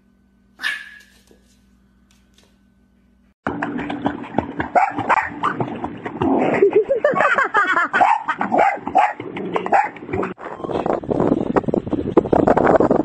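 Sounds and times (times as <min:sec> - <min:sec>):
dog barking and yipping: 0:00.6 - 0:01.4, 0:04.7 - 0:05.6, 0:07.9 - 0:10.0
water splashing: 0:03.5 - 0:07.4.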